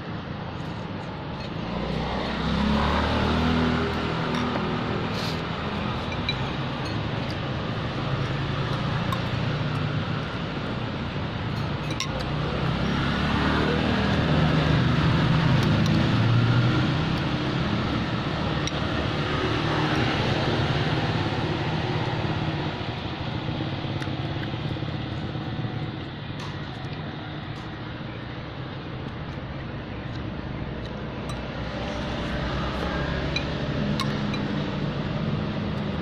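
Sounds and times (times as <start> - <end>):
road traffic: 0.0 - 36.0
vehicle engine passing: 1.2 - 11.6, 12.2 - 27.8, 28.4 - 36.0
spoon and fork clinking on bowl: 5.9 - 7.5, 11.5 - 12.3.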